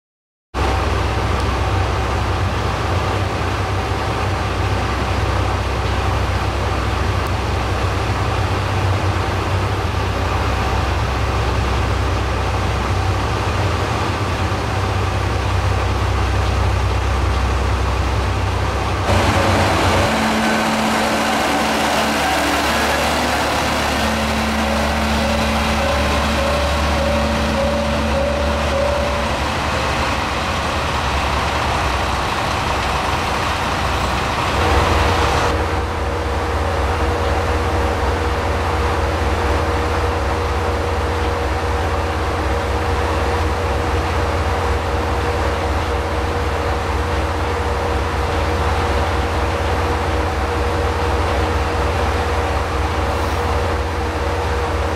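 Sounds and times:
diesel engine idling rumble: 0:00.6 - 0:54.9
engine whining tones: 0:19.0 - 0:36.0.

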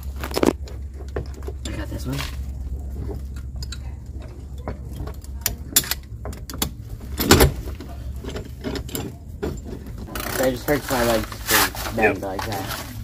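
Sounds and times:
steady low rumble: 0:00.0 - 0:10.2
metal tool clicking and clunking: 0:03.3 - 0:07.6, 0:08.2 - 0:10.0.

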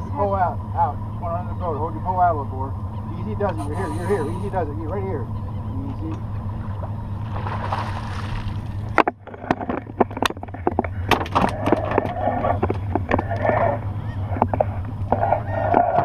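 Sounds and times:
boat engine low hum: 0:00.0 - 0:16.0
fish splashing in landing net: 0:07.3 - 0:08.7.

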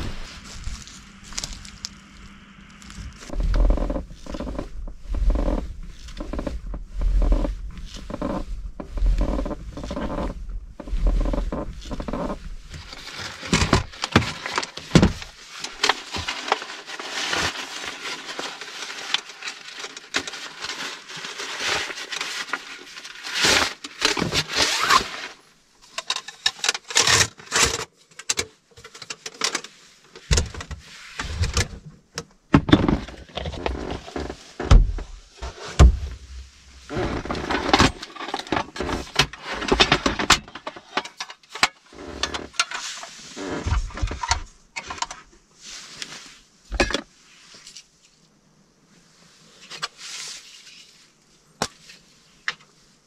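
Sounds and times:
nylon sleeping bag rustling: 0:00.0 - 0:01.9, 0:02.8 - 0:25.6.

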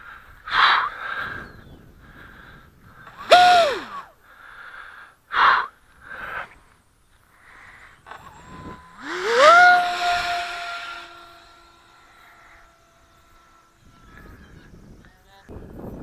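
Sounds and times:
sharp breaths: 0:00.0 - 0:12.8
model plane motor whine: 0:02.3 - 0:04.2, 0:07.2 - 0:16.0.

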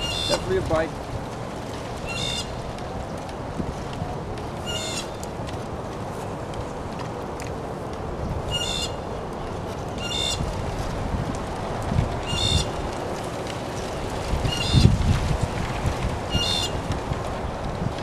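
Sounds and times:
bird honking call: 0:00.0 - 0:00.5, 0:04.6 - 0:05.2, 0:08.5 - 0:09.0
wind rumbling on microphone: 0:00.0 - 0:18.0.

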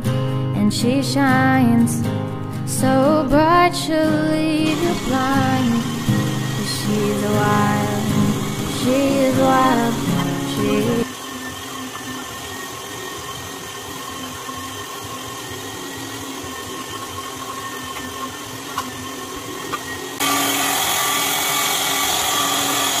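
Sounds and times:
meat grinder motor whining: 0:04.4 - 0:23.0.

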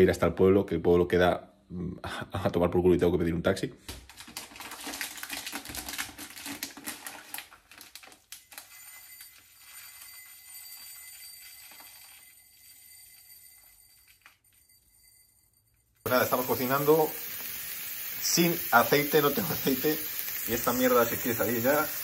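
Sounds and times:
plastic container clicking and rattling: 0:03.9 - 0:08.3.

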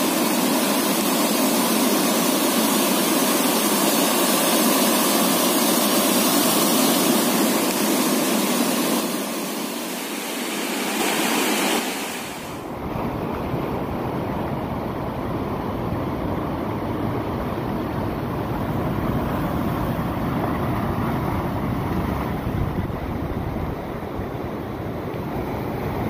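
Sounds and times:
wind rumbling on microphone: 0:12.1 - 0:26.0.

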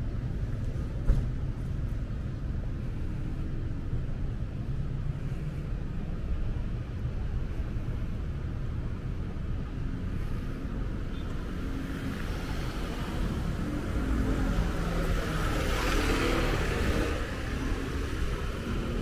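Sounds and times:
low rumble of cars: 0:00.0 - 0:19.0
vehicle approaching: 0:09.0 - 0:19.0.

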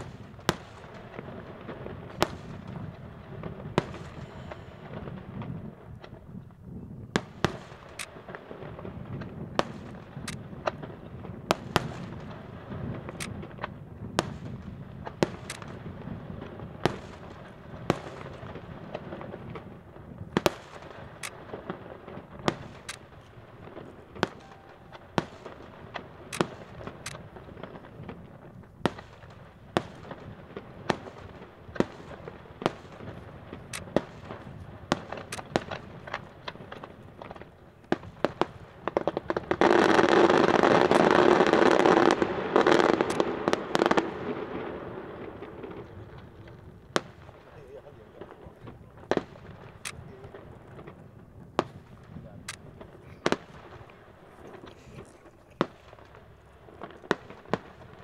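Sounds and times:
firework shells bursting: 0:00.0 - 0:06.2, 0:11.5 - 0:47.6.

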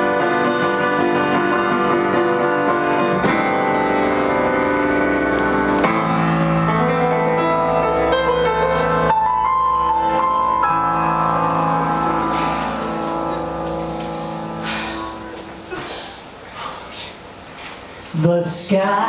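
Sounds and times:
electric keyboard piano melody: 0:00.0 - 0:16.4.

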